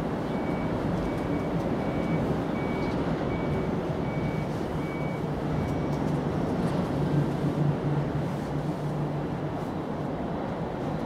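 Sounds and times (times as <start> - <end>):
reversing alarm beeping: 0.3 - 6.0.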